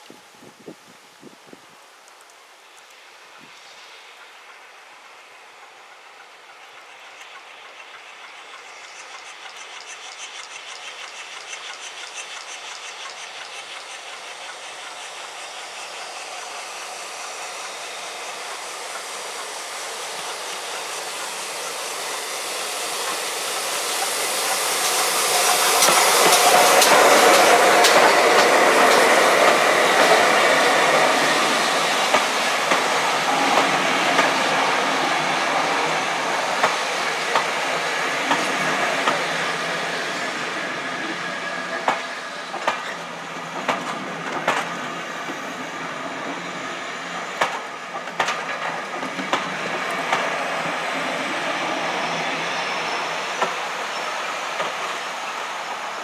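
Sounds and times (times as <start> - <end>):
steam locomotive passing: 0.0 - 56.0
train wheels clicking over rail joints: 5.6 - 56.0.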